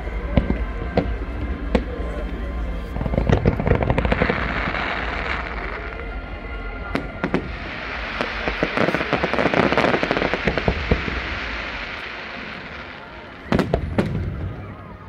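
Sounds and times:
fireworks crackling: 0.0s - 15.0s
fireworks bangs: 2.8s - 6.1s, 6.9s - 15.0s
fireworks fizzing: 2.8s - 6.1s, 6.9s - 15.0s.

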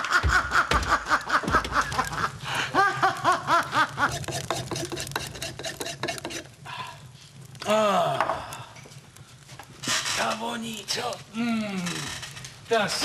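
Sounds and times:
dull knocks on iron cauldron: 0.2s - 2.0s.

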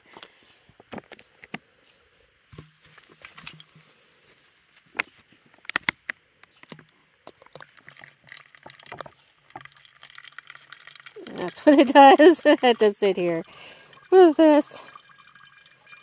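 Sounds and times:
water filter clicks and crackles: 2.6s - 3.9s, 4.9s - 16.0s.

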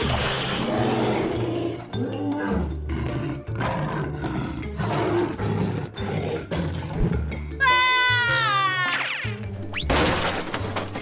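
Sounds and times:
background music: 0.0s - 11.0s
dinosaur roars: 0.2s - 7.0s.

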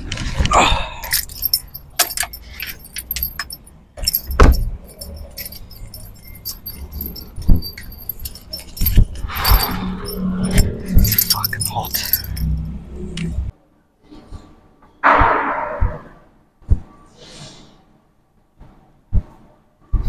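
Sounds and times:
small hard objects clinking: 1.0s - 12.6s.

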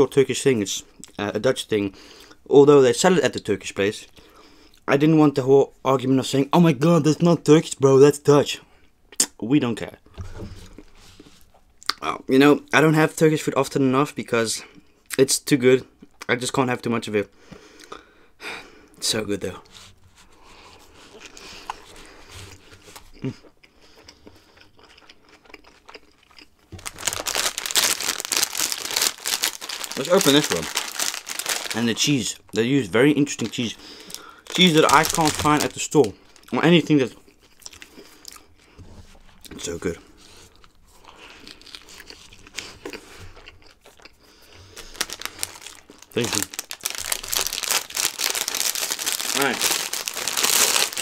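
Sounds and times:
faint chewing: 20.5s - 27.1s, 40.2s - 47.4s
food packaging crinkling: 24.8s - 32.5s, 33.2s - 38.7s, 40.5s - 51.0s.

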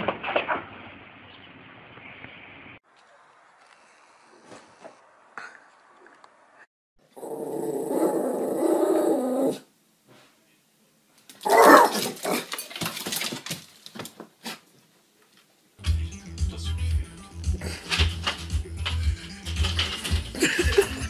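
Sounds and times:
dog growling: 7.1s - 9.7s
sharp knocks and clatter: 11.9s - 14.3s, 17.8s - 21.0s.

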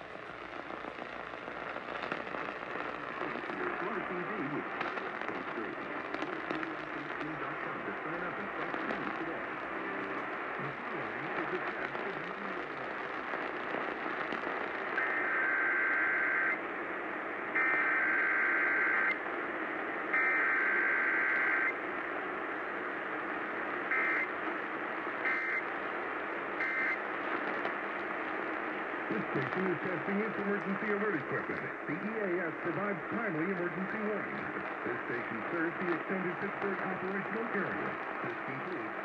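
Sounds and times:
harsh buzzing data bursts: 0.0s - 16.6s, 17.5s - 19.2s, 20.1s - 21.8s, 23.8s - 25.9s, 26.5s - 31.2s
radio hiss: 0.0s - 39.0s.

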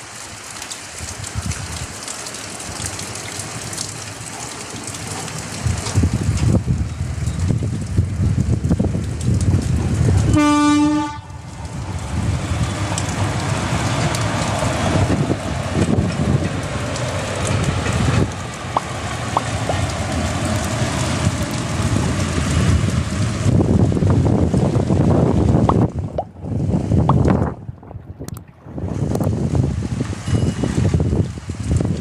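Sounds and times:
train running on tracks: 2.1s - 32.0s
locomotive horn blast: 10.3s - 11.6s.

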